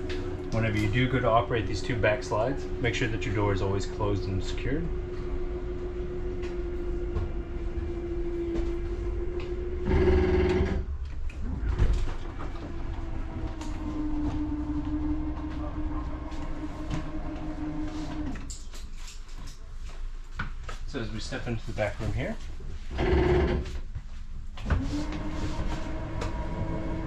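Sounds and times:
electric motor whining: 0:05.1 - 0:10.9.

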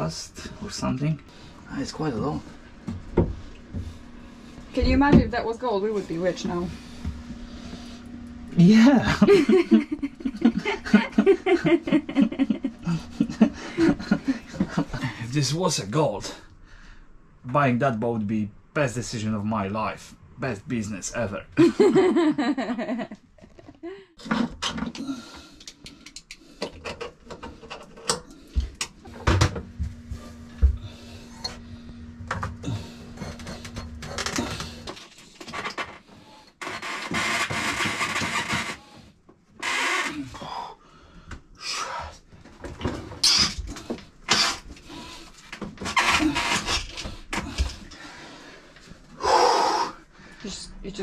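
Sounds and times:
low steady hum: 0:00.0 - 0:38.8.

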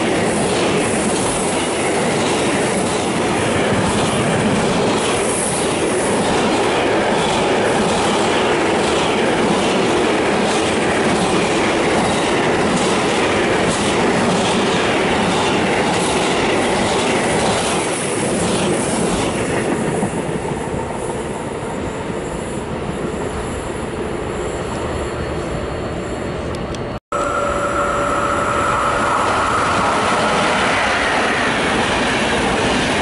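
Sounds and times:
freight train passing: 0:00.0 - 0:33.0.

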